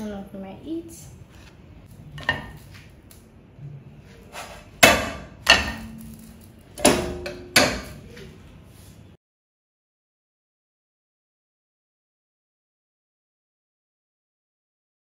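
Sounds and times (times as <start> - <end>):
kitchenware knocking: 2.2 - 2.6, 4.8 - 8.1.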